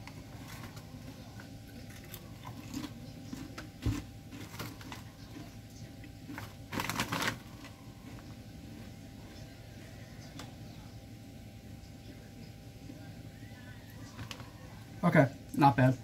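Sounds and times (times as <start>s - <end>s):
chips crunching as chewed: 0.0s - 9.7s
foil bag crinkling: 1.9s - 5.5s, 6.3s - 8.3s.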